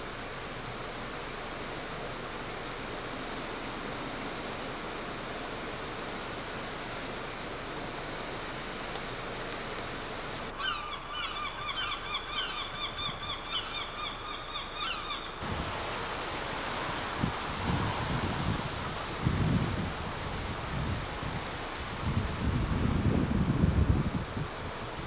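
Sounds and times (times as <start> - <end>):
wind: 0.0 - 25.0
flock of birds calling: 10.5 - 15.4
wind buffeting microphone: 15.4 - 25.0.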